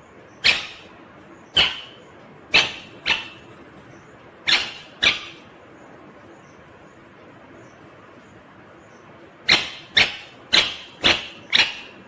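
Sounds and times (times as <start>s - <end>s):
parakeet calls: 0.1s - 5.6s, 9.0s - 12.0s.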